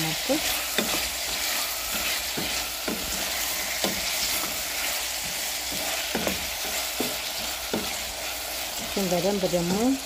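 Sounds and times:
vegetables sizzling in oil: 0.0s - 10.0s
spoon scraping and knocking pot: 0.5s - 9.0s.

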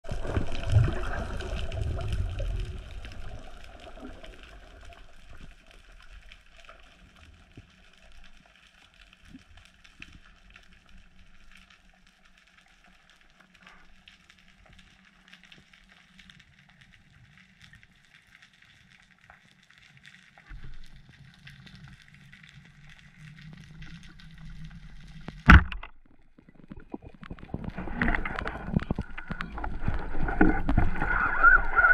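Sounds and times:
water rumbling against camera: 0.0s - 6.3s, 22.7s - 31.9s
underwater crackle of tiny clicks: 0.1s - 31.9s.

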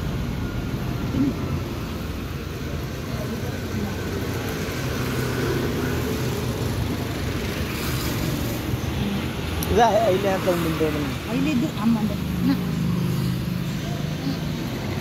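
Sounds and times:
road traffic rumble: 0.0s - 15.0s
faint voices: 8.6s - 15.0s.

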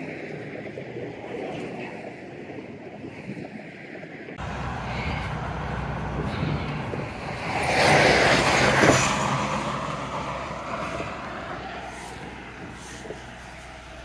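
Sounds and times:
low rumble of traffic: 4.4s - 14.0s
vehicle passing: 4.4s - 14.0s.

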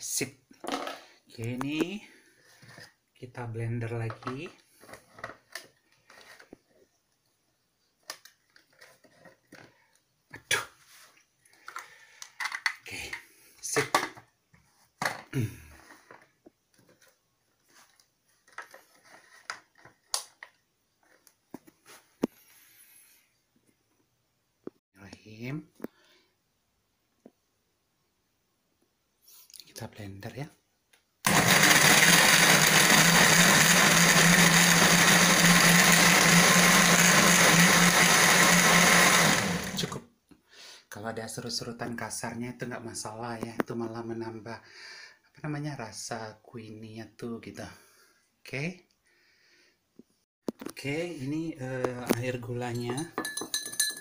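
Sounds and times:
blender motor humming: 31.3s - 40.0s.

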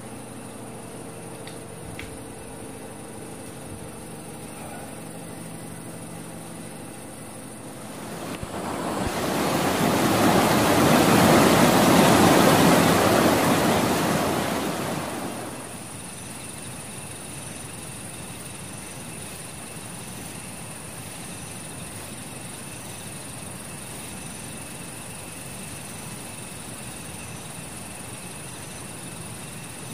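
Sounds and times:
insects chirping: 0.0s - 29.9s
rushing stream water: 7.8s - 15.8s.

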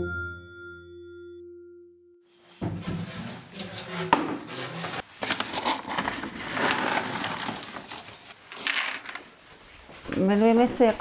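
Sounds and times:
kibble rattling into bucket: 5.3s - 9.2s.

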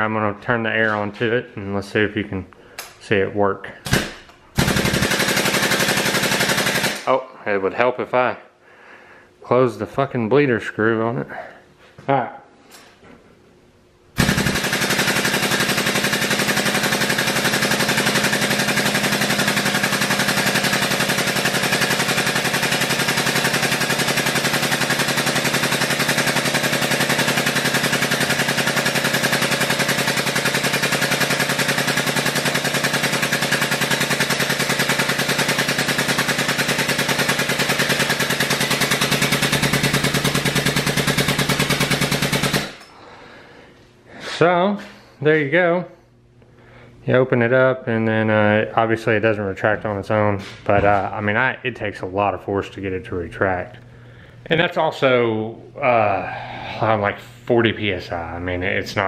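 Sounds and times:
hydraulic pump rapid chatter: 4.6s - 7.1s, 14.2s - 42.8s.

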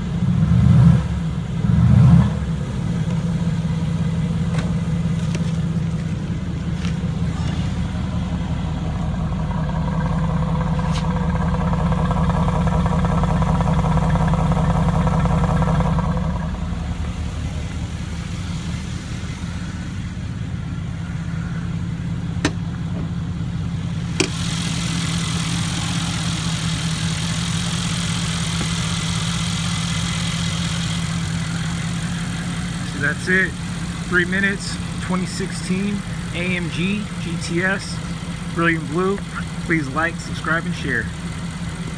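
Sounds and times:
car engine idling: 0.0s - 41.9s
higher hum: 2.6s - 38.6s.

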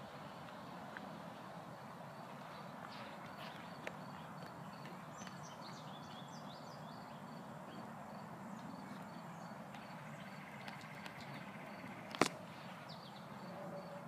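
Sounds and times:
outdoor background hum: 0.0s - 14.0s
birds chirping: 2.4s - 8.0s, 8.8s - 14.0s.

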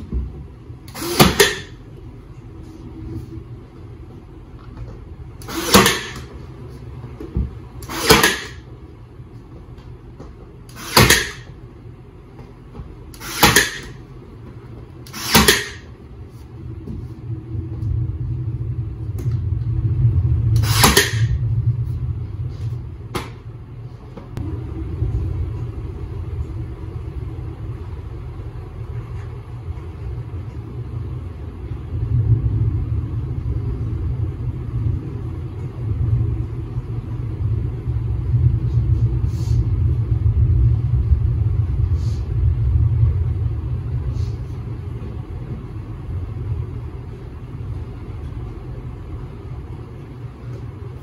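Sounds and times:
low rumble: 0.0s - 51.0s
brad nailer firing sharp cracks: 0.9s - 1.7s, 5.4s - 6.2s, 7.8s - 8.6s, 10.7s - 11.5s, 13.2s - 14.0s, 15.1s - 15.8s, 20.6s - 21.3s.

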